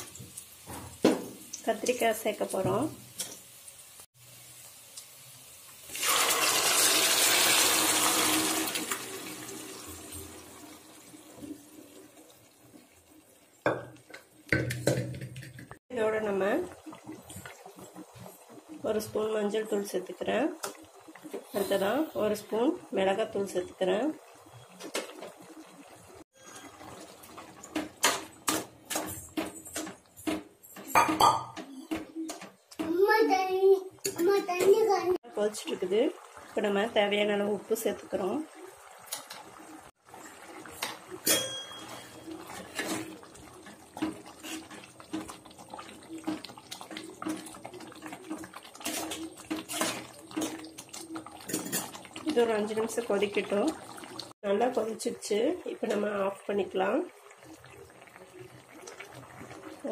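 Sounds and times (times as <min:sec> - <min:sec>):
food sizzling in hot oil: 0:00.0 - 0:15.0, 0:15.8 - 0:29.8, 0:34.0 - 0:59.9
ladle stirring thick gravy: 0:41.9 - 0:54.4
ladle scraping and knocking pan: 0:48.8 - 0:50.6.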